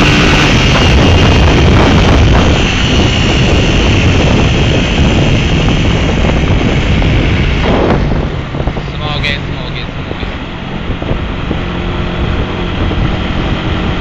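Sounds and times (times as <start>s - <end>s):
motorcycle engine running: 0.0s - 14.0s
wind rush on microphone: 0.0s - 14.0s.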